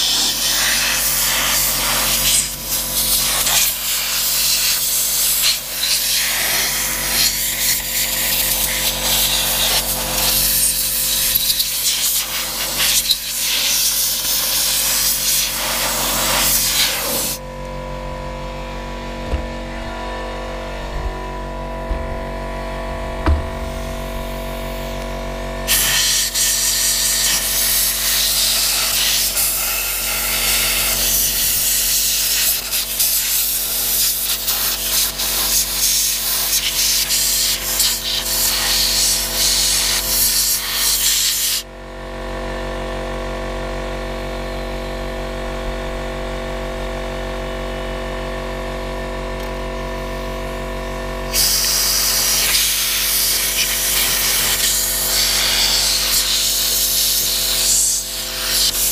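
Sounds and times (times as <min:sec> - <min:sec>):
air blow gun hissing: 0:00.0 - 0:17.4, 0:25.7 - 0:41.6, 0:51.3 - 0:58.9
air compressor humming: 0:00.0 - 0:58.9.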